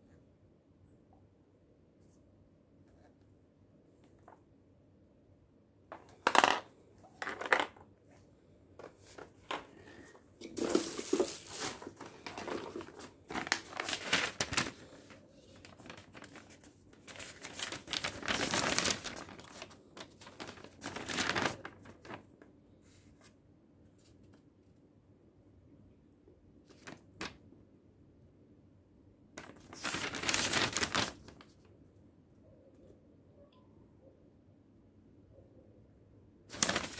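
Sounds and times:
plastic parts knocking: 0:05.9 - 0:07.8
paper rustling and crinkling: 0:08.8 - 0:23.4, 0:26.7 - 0:27.4, 0:29.4 - 0:31.6, 0:36.5 - 0:36.9.

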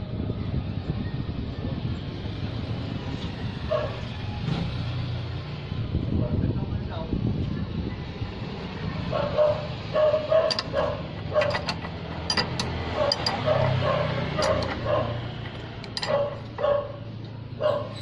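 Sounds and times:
dog barking: 0:03.7 - 0:04.0, 0:08.8 - 0:11.6, 0:12.9 - 0:15.3, 0:16.1 - 0:18.0
wrench clicking on metal: 0:10.4 - 0:16.6.

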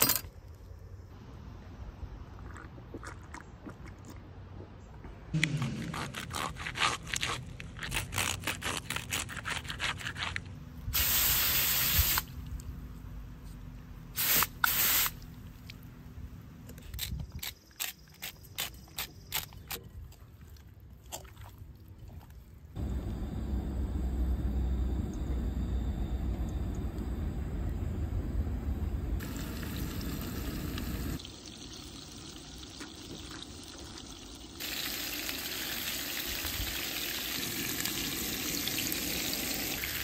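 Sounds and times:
camp stove burner hissing: 0:11.0 - 0:12.3, 0:29.2 - 0:31.2
hissing spray bursts: 0:11.0 - 0:12.4, 0:14.2 - 0:15.2.

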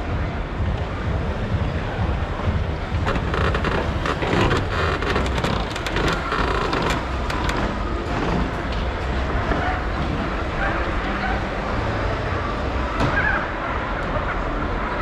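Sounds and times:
low rumble of driving vehicle: 0:00.0 - 0:15.0
crackling clicks: 0:03.1 - 0:07.8.

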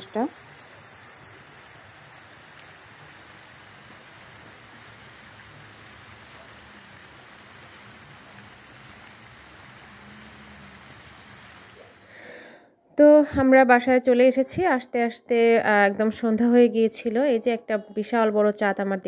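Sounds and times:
fountain water splashing: 0:00.0 - 0:12.1.

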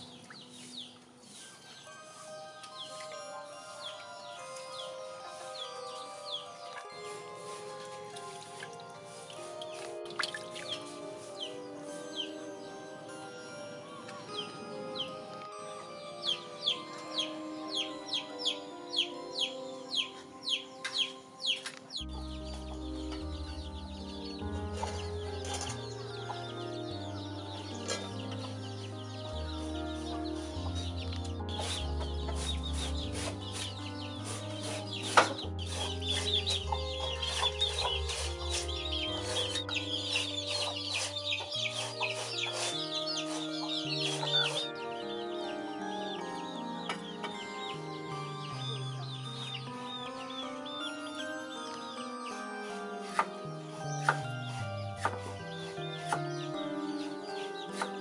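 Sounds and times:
melody of held notes: 0:00.0 - 0:58.0
chicken calls: 0:27.8 - 0:46.2.

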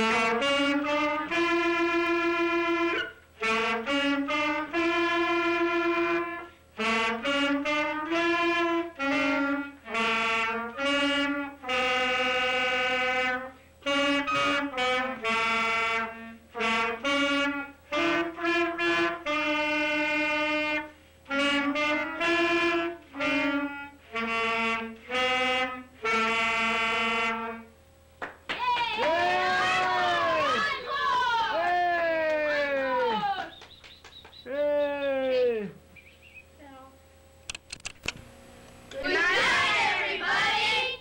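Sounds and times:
clarinets playing dixieland tune: 0:00.0 - 0:27.7.

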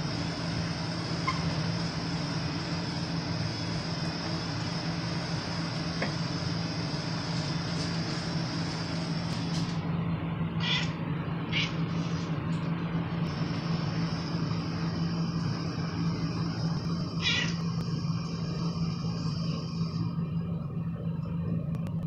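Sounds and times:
steady low hum: 0:00.0 - 0:22.0
cat meowing: 0:10.6 - 0:11.8, 0:17.2 - 0:17.6.

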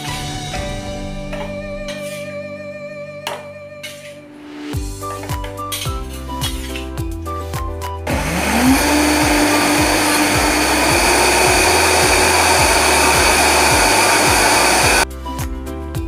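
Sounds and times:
blender motor whining: 0:08.1 - 0:15.0.

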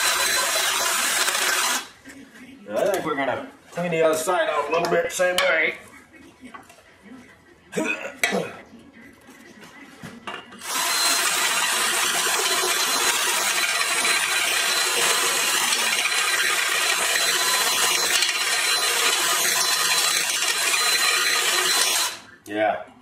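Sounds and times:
cordless drill cutting metal: 0:00.0 - 0:01.9, 0:10.6 - 0:22.2.

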